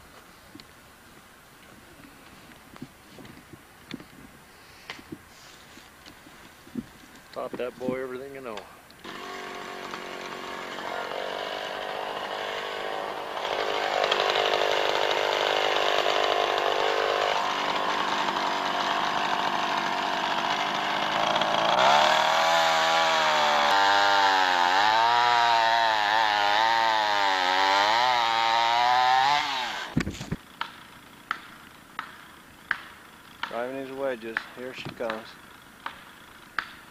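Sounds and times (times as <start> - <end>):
chainsaw cutting tree: 8.5 - 36.9.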